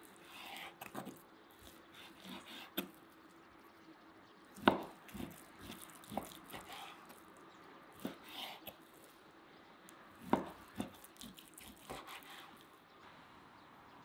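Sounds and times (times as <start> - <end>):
knife slicing raw meat: 0.0 - 3.0, 4.6 - 7.3, 8.0 - 9.1, 10.2 - 12.7.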